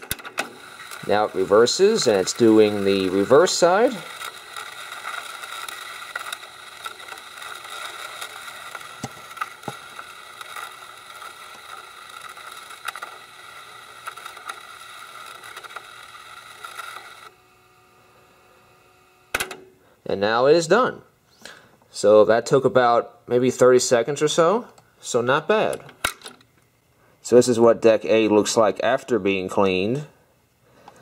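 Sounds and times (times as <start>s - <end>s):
cassette deck whirring: 0.0s - 19.9s.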